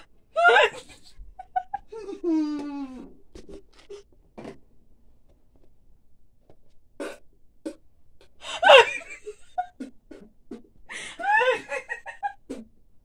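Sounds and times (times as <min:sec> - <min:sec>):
women laughing: 0:00.4 - 0:02.4, 0:08.5 - 0:09.6, 0:11.1 - 0:12.6.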